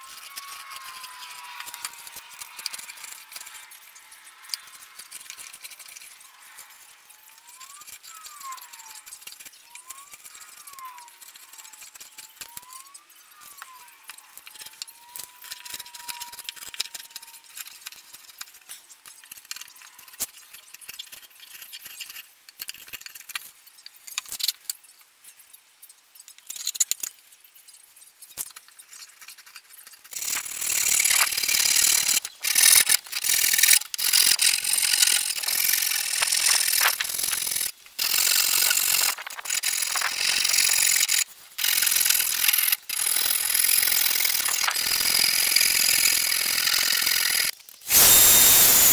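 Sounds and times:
hissy power tool on wood: 30.2 - 48.9.

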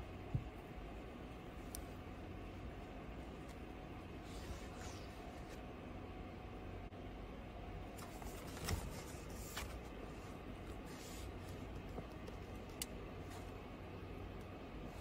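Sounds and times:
low steady hum: 0.0 - 15.0
magazine pages rustling: 8.0 - 11.6.

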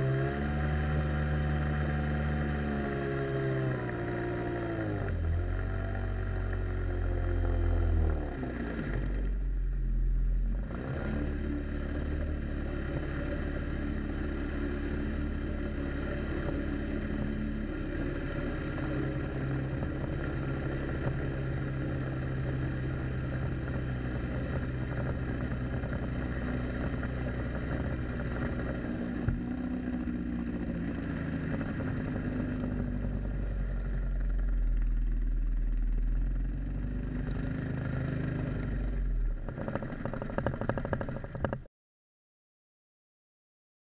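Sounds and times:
boat jet motor running: 10.7 - 41.6.

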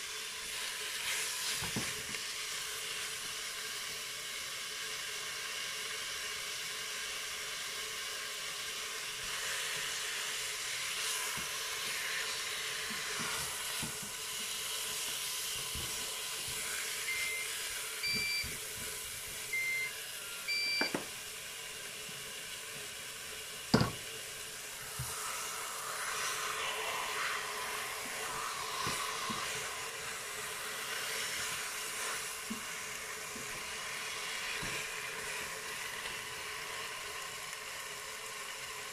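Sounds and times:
chicken sizzling: 0.0 - 38.9
short electronic beeps: 17.1 - 17.4, 18.0 - 18.5, 19.5 - 21.0.

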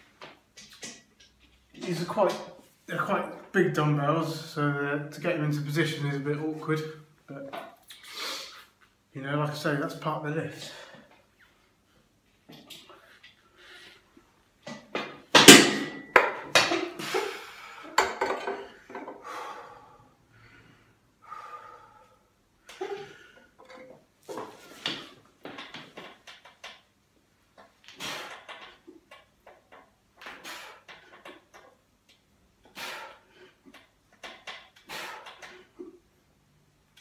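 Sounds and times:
dumbbells clanking: 14.6 - 19.3, 22.7 - 31.9, 32.6 - 35.9
faint knocks and rustles: 22.7 - 32.3.

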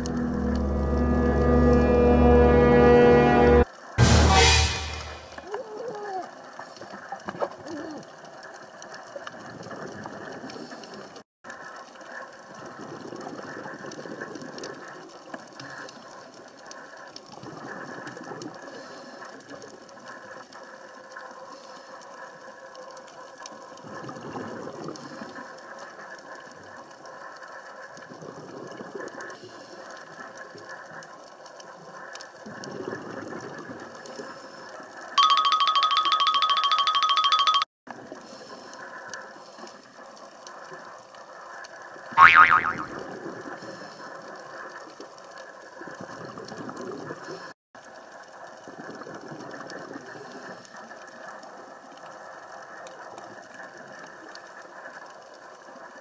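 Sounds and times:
underwater hiss and rumble: 5.4 - 35.2, 37.9 - 42.2, 42.9 - 56.0
regulator bubbling: 42.2 - 43.0.

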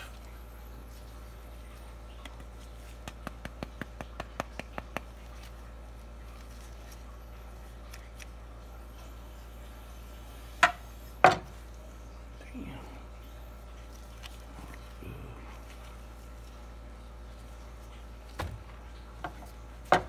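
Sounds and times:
knocks on cutting board: 10.6 - 11.5.

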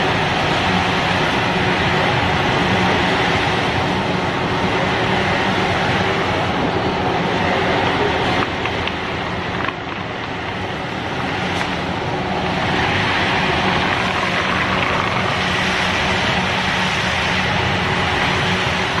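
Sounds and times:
machinery running with hum: 0.0 - 19.0.

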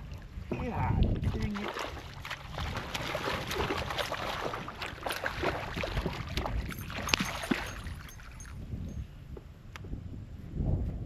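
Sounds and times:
water lapping against kayak hull: 0.0 - 8.4.

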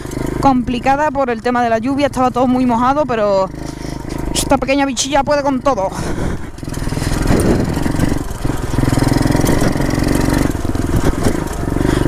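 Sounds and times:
motorbike engine revving: 0.0 - 12.0.

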